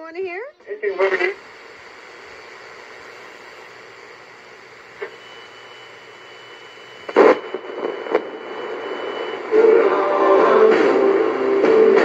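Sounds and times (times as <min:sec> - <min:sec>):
radio static hiss: 0:00.6 - 0:12.0
radio dial click: 0:01.0 - 0:09.5
thin steady whistle: 0:05.0 - 0:09.9
loud crackle: 0:07.1 - 0:09.4.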